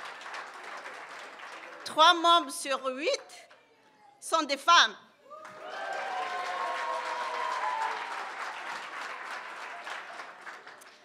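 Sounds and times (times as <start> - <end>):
audience applauding: 0.0 - 2.0, 5.3 - 11.0.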